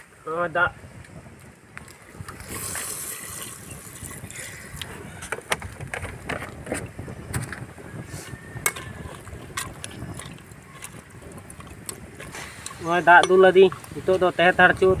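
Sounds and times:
liquid sloshing in a pot: 0:08.7 - 0:14.0.

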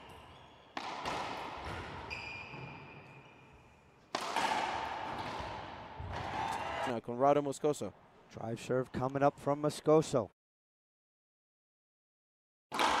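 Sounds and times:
racquetball hits echoing: 0:00.0 - 0:03.3, 0:04.0 - 0:06.7, 0:12.7 - 0:13.0.

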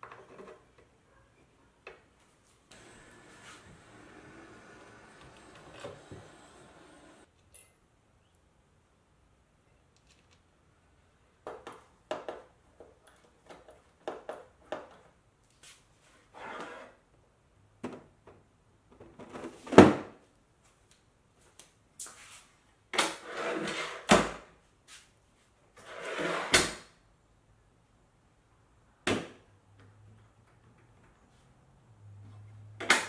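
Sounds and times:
plastic boxes sliding on rails: 0:02.7 - 0:07.3.

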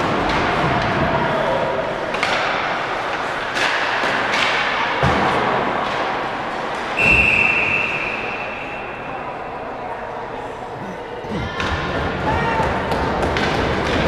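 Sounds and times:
puck and sticks hitting boards: 0:00.0 - 0:07.8, 0:11.4 - 0:14.0
rink hubbub: 0:00.0 - 0:14.0
referee whistle blast: 0:07.0 - 0:09.0.

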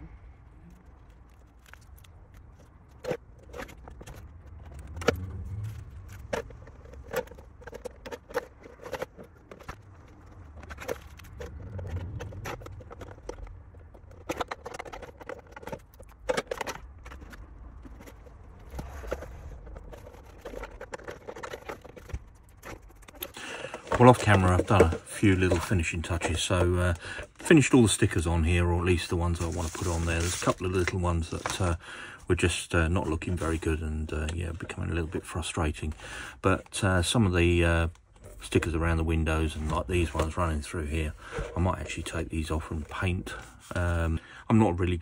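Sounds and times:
light scraping: 0:01.0 - 0:31.8.

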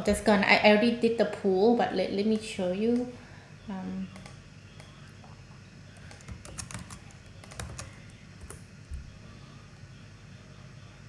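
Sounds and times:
computer keyboard keystrokes: 0:04.1 - 0:04.9, 0:06.0 - 0:08.6.

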